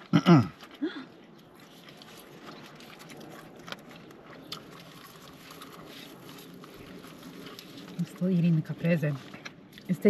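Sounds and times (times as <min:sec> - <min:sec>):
chewing sounds: 0:00.0 - 0:10.0.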